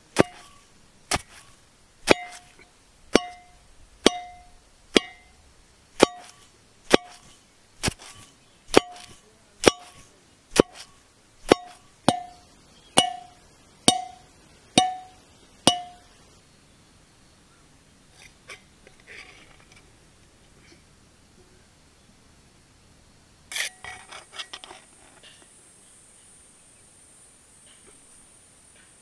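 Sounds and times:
pestle pounding in metal mortar: 0.1 - 1.4, 2.0 - 5.3, 6.0 - 12.4, 13.0 - 14.2, 14.8 - 16.0.

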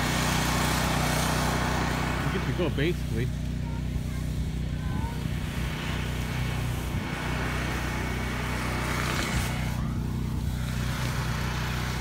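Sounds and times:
generator engine running: 0.0 - 12.0.

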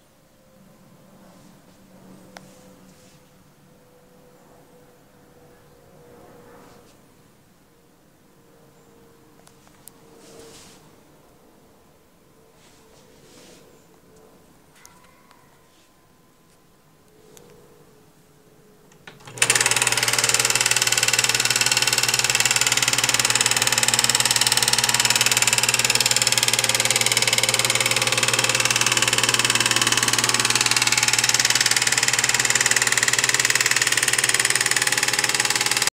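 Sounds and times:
film projector clattering: 19.0 - 35.9.

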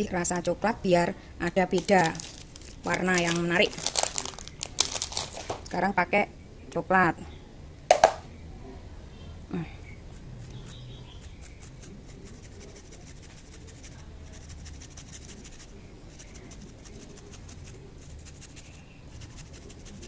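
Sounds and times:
chocolate grated on metal grater: 10.7 - 20.0.

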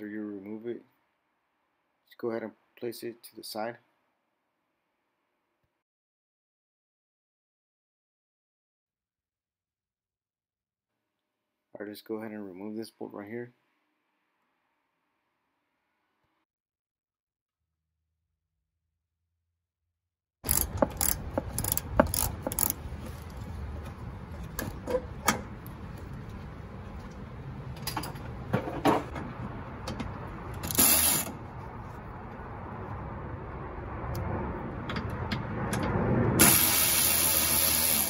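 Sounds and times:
socket ratchet clicking: 20.5 - 22.8.

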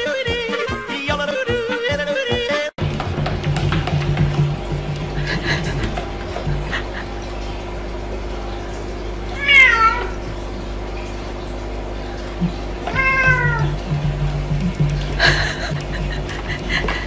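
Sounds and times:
cat meowing: 9.4 - 10.2, 12.9 - 13.8.

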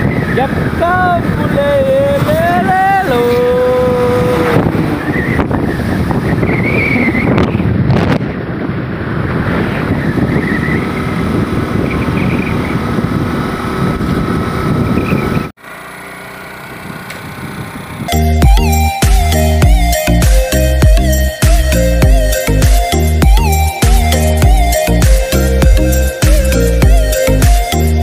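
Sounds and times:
wind buffeting microphone: 0.0 - 15.6, 16.7 - 18.6
outdoor background noise: 2.2 - 18.1.

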